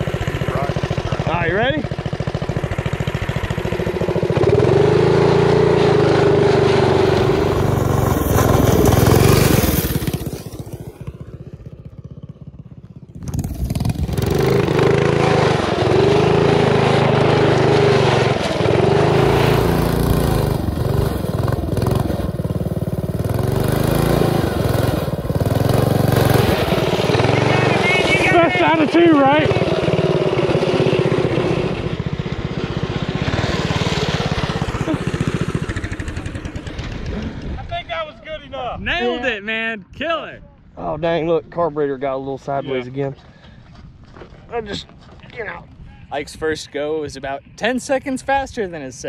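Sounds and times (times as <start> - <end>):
mini bike engine revving hard: 0.0 - 37.5.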